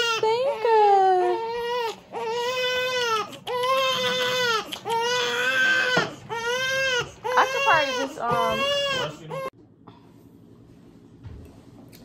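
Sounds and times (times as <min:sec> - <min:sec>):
baby crying: 0:00.0 - 0:09.5.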